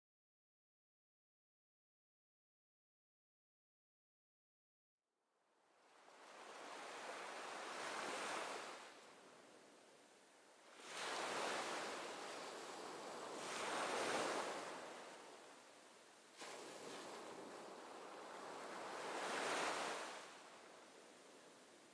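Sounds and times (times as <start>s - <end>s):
sea waves rushing: 6.0s - 9.0s, 10.6s - 21.9s.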